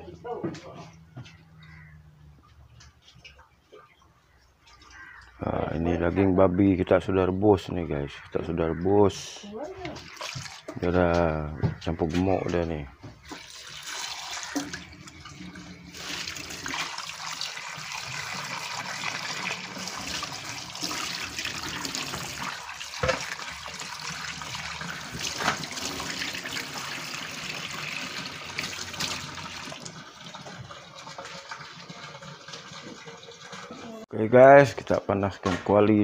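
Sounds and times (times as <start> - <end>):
tap water running into sink: 9.8 - 10.9, 13.1 - 34.0
meat being rinsed by hand: 9.9 - 12.0, 13.2 - 34.0.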